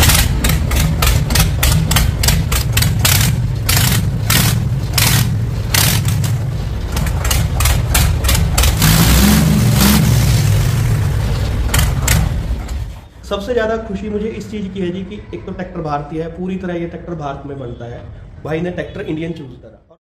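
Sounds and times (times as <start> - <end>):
exhaust cracks: 0.0 - 13.0
tractor diesel engine running: 0.0 - 13.1.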